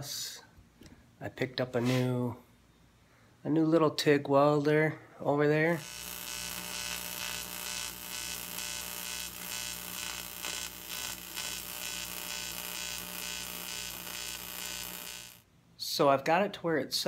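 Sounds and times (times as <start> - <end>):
welding arc buzzing: 5.7 - 15.4.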